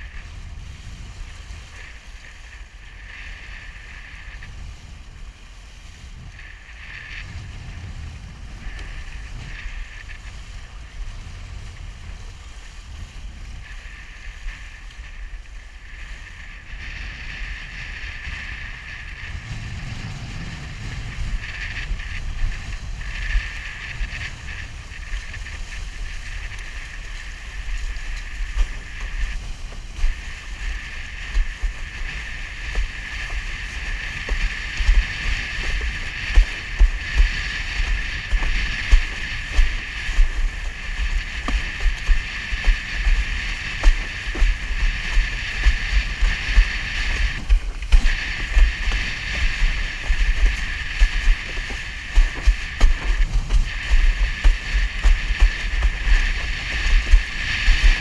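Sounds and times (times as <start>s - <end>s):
board hull hissing over water: 0.0s - 58.0s
wind buffeting microphone: 0.0s - 58.0s
board slapping on water: 24.2s - 58.0s.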